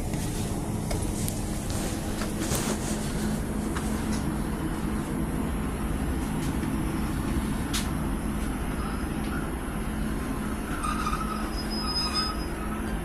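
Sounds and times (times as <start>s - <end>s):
train engine hum and wheel rumble: 0.0s - 13.0s
faint high squeals: 8.7s - 9.9s, 10.5s - 13.0s.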